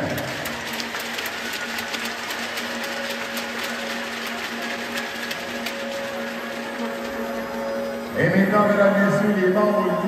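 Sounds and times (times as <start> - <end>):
close hand claps: 0.0 - 7.8
crowd applauding: 0.0 - 9.4.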